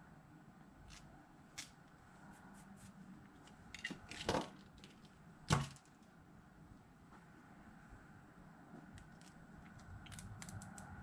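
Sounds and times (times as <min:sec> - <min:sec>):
small parts clicking: 0:09.0 - 0:11.0.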